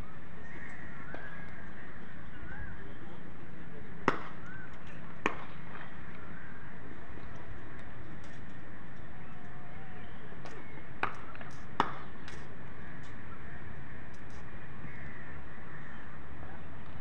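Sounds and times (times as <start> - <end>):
outdoor background noise: 0.0 - 17.0
cricket bat striking ball: 4.1 - 4.4.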